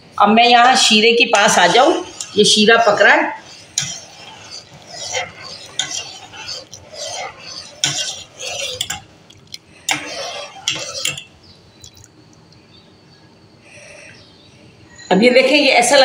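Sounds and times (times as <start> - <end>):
metal spoon stirring in a pot: 0.7 - 12.2.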